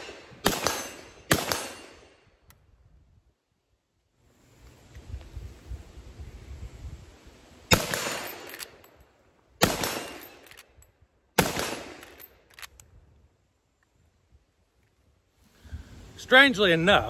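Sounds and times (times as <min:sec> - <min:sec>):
rifle shots: 0:00.0 - 0:02.2, 0:07.7 - 0:08.7, 0:09.6 - 0:10.6, 0:11.4 - 0:12.3.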